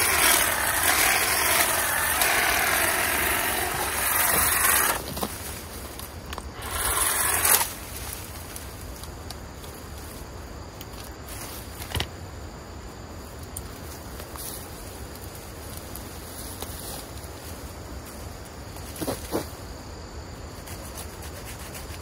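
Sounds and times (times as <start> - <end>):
hedge trimmer running: 0.0 - 5.0, 6.5 - 7.7
clicks and rustles of vines: 0.0 - 12.2, 13.2 - 19.6
insects buzzing: 0.0 - 22.0.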